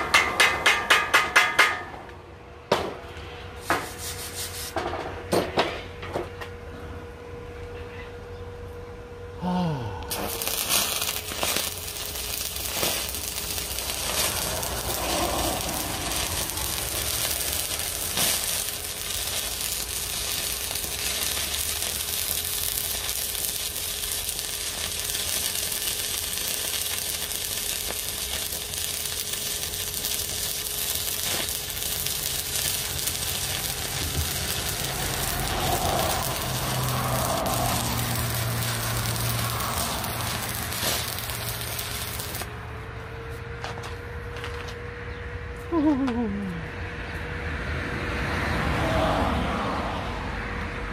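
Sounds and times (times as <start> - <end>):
welding arc crackling and sizzling: 3.6 - 4.8, 9.7 - 42.6
steady hum: 6.5 - 43.3.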